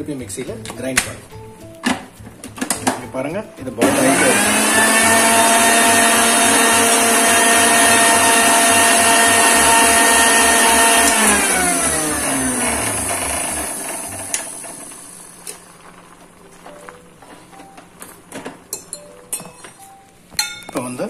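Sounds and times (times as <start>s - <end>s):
mixer grinder motor running: 3.8s - 15.7s
spoon clinking against pan: 18.7s - 20.9s.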